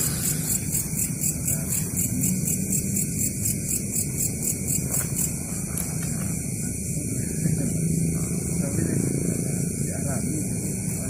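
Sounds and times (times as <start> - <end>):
night insects chirping: 0.0 - 11.0.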